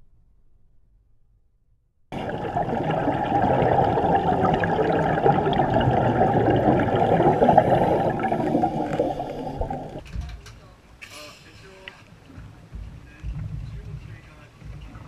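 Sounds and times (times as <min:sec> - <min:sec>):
muffled underwater bubbling: 0:02.2 - 0:10.0.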